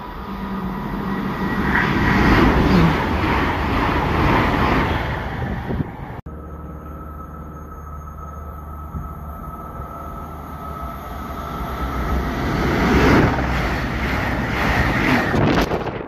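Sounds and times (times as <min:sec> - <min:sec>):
diesel train passing: 0:00.0 - 0:16.0.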